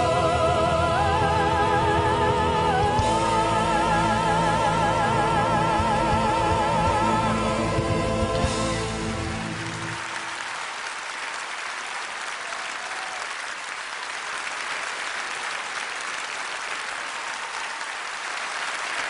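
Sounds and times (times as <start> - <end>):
audience applauding: 8.4 - 19.0.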